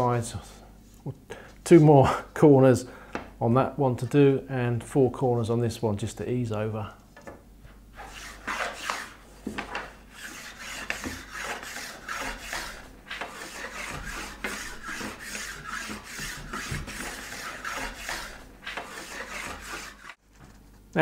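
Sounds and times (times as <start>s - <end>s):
sanding wood by hand: 8.0s - 9.2s, 10.1s - 20.2s.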